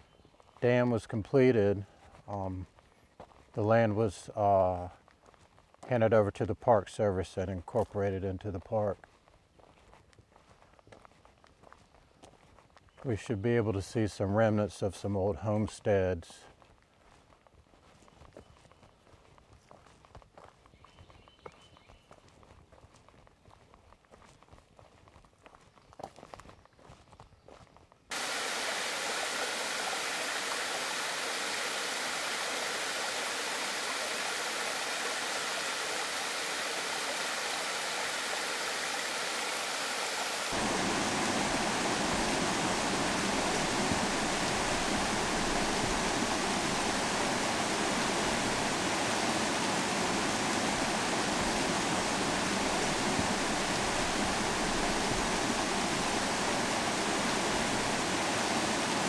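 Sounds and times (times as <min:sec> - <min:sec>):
stream cascading over rocks: 0:28.1 - 0:59.0.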